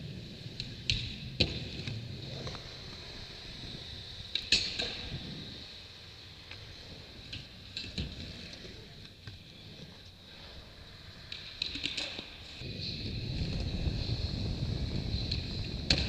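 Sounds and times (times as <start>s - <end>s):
skateboard wheels rolling on concrete: 0.0s - 16.0s
skateboard clicks and knocks: 4.2s - 12.6s.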